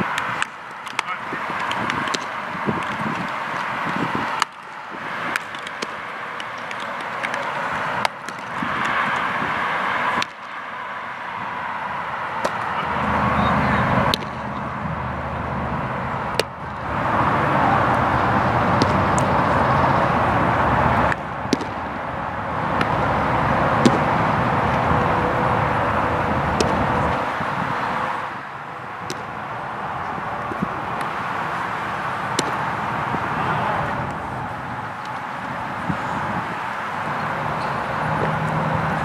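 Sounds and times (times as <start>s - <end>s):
baseball striking bat: 0.0s - 10.6s, 12.4s - 14.7s, 16.2s - 19.6s, 21.0s - 22.0s, 22.7s - 23.1s, 23.8s - 24.9s, 26.5s - 27.4s, 29.0s - 29.4s, 30.0s - 34.2s
outdoor ballpark background noise: 0.0s - 39.0s
baseball hitting glove: 0.1s - 9.3s, 10.1s - 10.5s, 12.4s - 12.8s, 14.0s - 14.6s, 16.3s - 16.7s, 18.8s - 19.4s, 21.1s - 21.9s, 22.7s - 23.0s, 23.8s - 24.8s, 26.6s - 27.2s, 29.0s - 29.4s, 32.3s - 33.2s.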